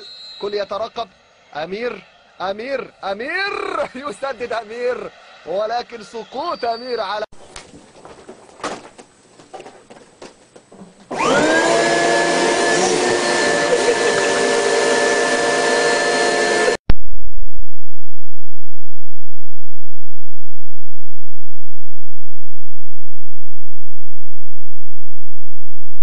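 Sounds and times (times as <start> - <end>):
vacuum cleaner motor whining: 11.1 - 16.8.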